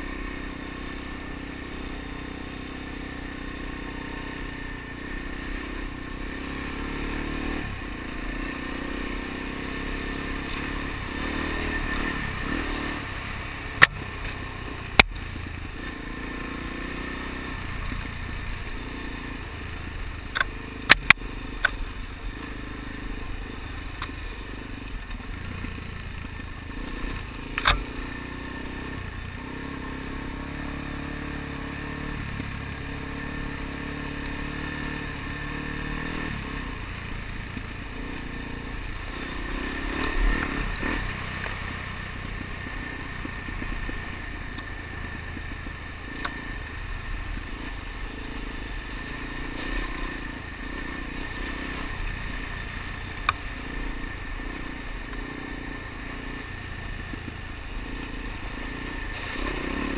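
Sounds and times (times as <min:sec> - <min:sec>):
motorcycle engine running: 0:00.0 - 0:59.9
sharp clicks and knocks: 0:20.3 - 0:21.8, 0:27.5 - 0:27.9.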